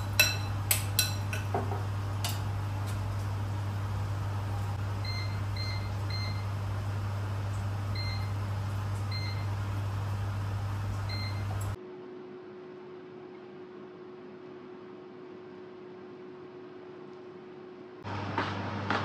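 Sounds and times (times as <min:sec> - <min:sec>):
air fryer control panel beeping: 0:04.8 - 0:11.8.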